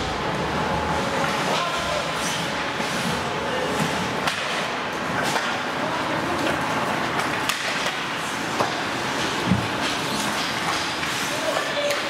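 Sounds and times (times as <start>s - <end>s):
hockey sticks and puck clacking: 3.8s - 12.0s
crowd chatter: 11.1s - 12.0s.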